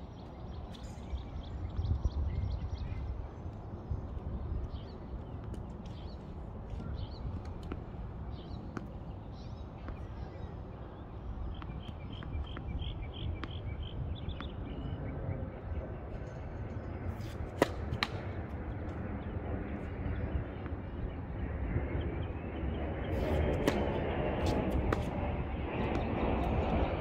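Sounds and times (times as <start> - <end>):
steady low rumble: 0.0 - 27.0
tennis ball bouncing on court: 6.7 - 7.9, 8.7 - 9.0, 17.2 - 18.4, 23.3 - 25.2.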